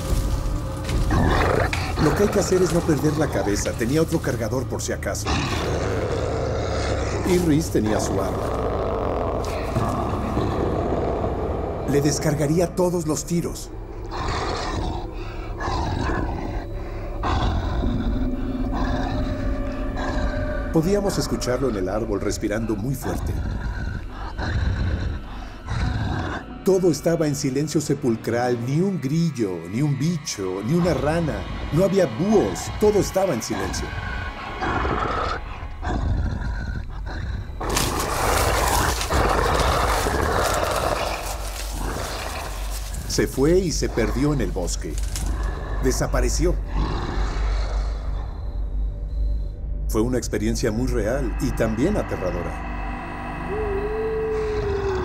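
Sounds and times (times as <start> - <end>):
creature breathing heavily: 0.0 - 4.2, 14.0 - 20.7, 22.6 - 26.6, 33.6 - 48.8
held drone tone: 50.6 - 55.0.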